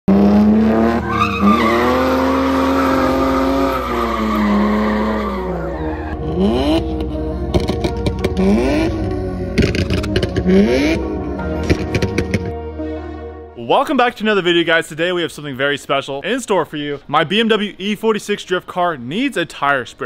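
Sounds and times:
car engine revving: 0:00.1 - 0:12.6
tyres squealing and skidding: 0:00.4 - 0:06.8.

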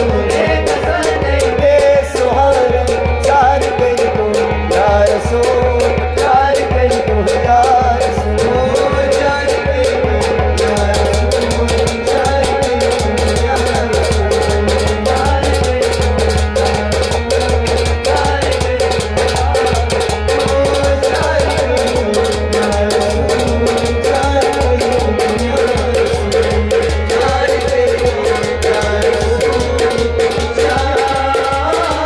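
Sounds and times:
harmonium melody: 0:00.0 - 0:32.0
fast shaker-like percussion: 0:10.2 - 0:32.0.

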